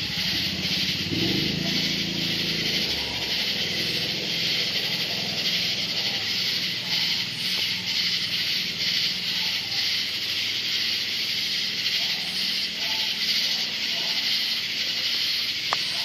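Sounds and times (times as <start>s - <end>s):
night insects chirping: 0.0s - 16.0s.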